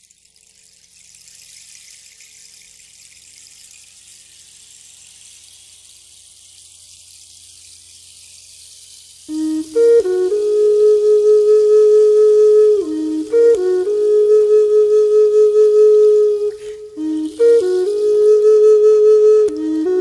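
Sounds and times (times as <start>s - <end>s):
running water hiss: 0.0s - 20.0s
flute playing sustained notes: 9.3s - 20.0s.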